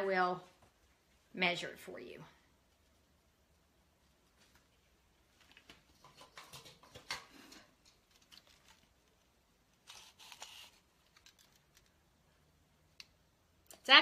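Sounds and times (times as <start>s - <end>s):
ribbon rustling and crinkling: 4.0s - 12.4s.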